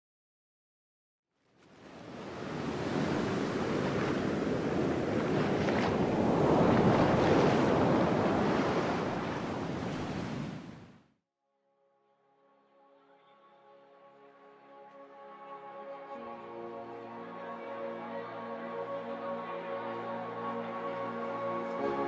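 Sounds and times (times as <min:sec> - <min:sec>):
sea waves on sandy beach: 0:01.6 - 0:11.0.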